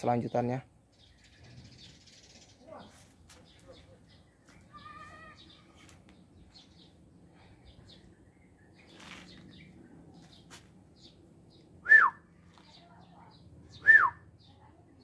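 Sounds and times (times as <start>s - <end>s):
bird whistling downward notes: 11.8s - 12.2s, 13.7s - 14.2s.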